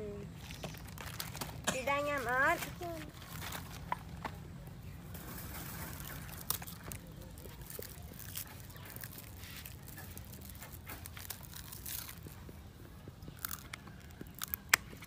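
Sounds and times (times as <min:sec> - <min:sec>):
plastic snack packet rustling: 0:00.4 - 0:04.2, 0:05.9 - 0:12.6.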